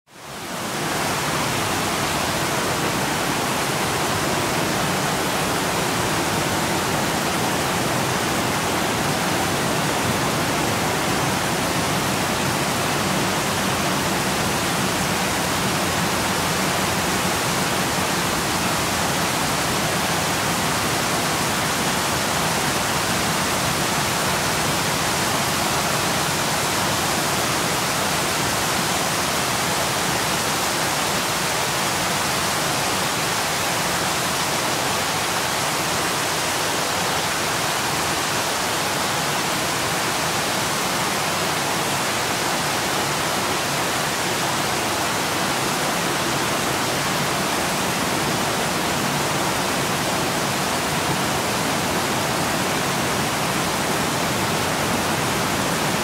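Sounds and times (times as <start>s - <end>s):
waterfall rushing: 0.1s - 56.0s.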